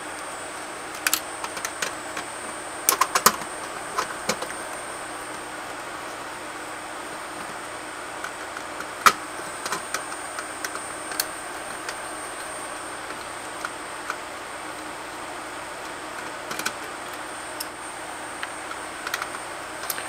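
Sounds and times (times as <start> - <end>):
light clicks of small parts: 0.9 - 2.3, 18.4 - 20.0.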